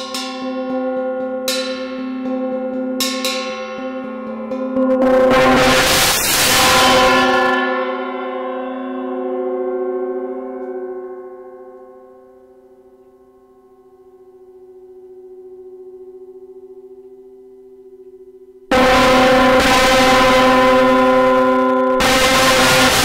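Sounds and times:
gong ringing: 0:03.8 - 0:10.9, 0:18.7 - 0:23.0.

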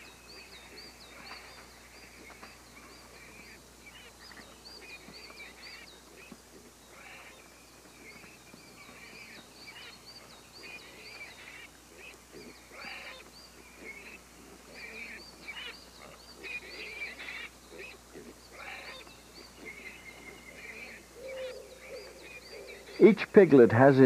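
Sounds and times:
piglets squeaking and squealing: 0:05.6 - 0:07.4, 0:10.6 - 0:23.0.

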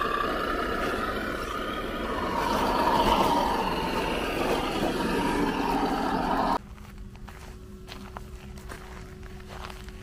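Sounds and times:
rc car electric motor whining: 0:00.0 - 0:06.6.

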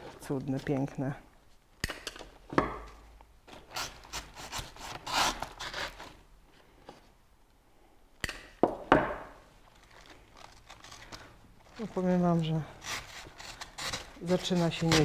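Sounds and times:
stems rubbing into floral foam: 0:09.7 - 0:15.0.

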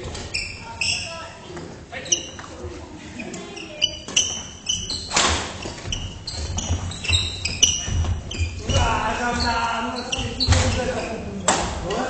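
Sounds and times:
court shoes squeaking: 0:00.0 - 0:12.0
footfalls thudding: 0:05.1 - 0:09.6.

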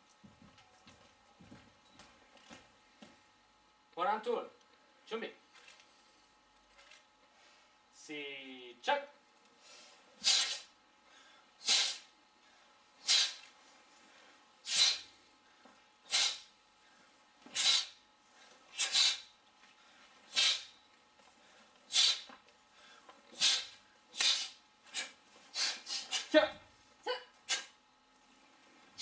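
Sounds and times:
hissing breath exhalations: 0:09.6 - 0:15.2, 0:16.1 - 0:20.8, 0:21.4 - 0:26.3.

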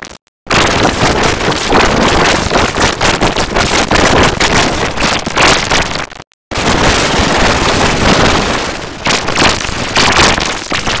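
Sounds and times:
harsh distorted rushing noise: 0:00.0 - 0:11.0.

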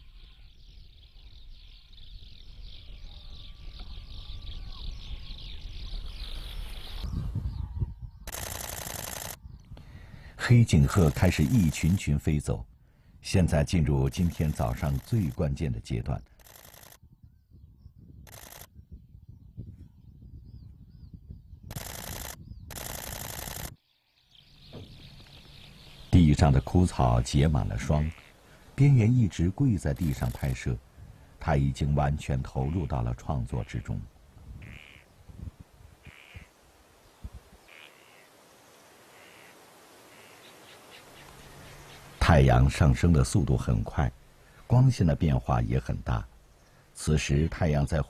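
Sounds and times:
low rumble of wind: 0:00.0 - 0:48.0
camera shutter bursts: 0:08.3 - 0:09.4, 0:16.4 - 0:17.0, 0:18.3 - 0:18.7, 0:21.7 - 0:23.8
flock of birds calling: 0:08.6 - 0:12.2, 0:13.7 - 0:16.4, 0:24.6 - 0:30.8, 0:34.6 - 0:35.1, 0:36.0 - 0:36.6, 0:37.7 - 0:38.4, 0:39.0 - 0:43.8.

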